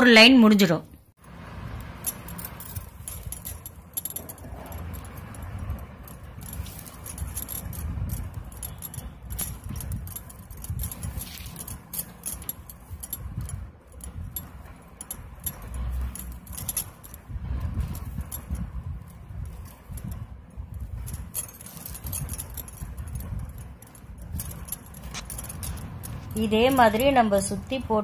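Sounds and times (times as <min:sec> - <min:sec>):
plastic wires rattling and clicking: 0:02.0 - 0:28.0.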